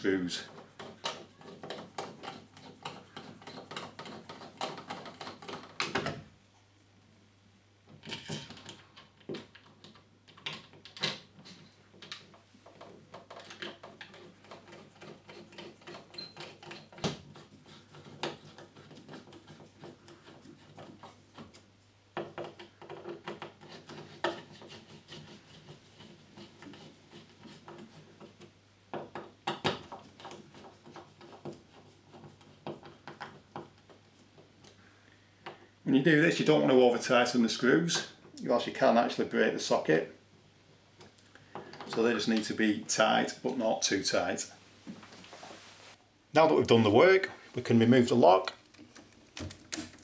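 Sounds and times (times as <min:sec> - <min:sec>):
screwdriver clicking and scraping: 0:00.5 - 0:05.8.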